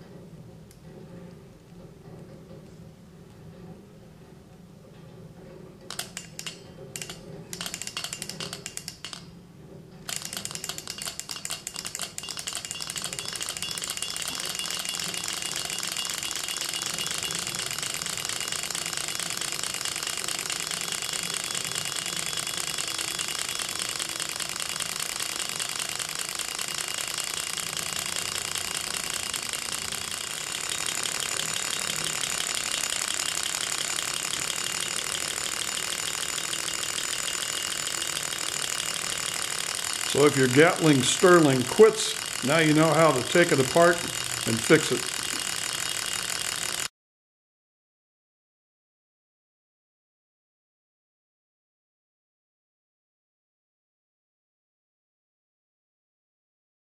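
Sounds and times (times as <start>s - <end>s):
model engine metallic clatter: 4.9s - 46.9s
rapid clicking of engine turned by hand: 5.8s - 9.3s, 10.1s - 46.9s.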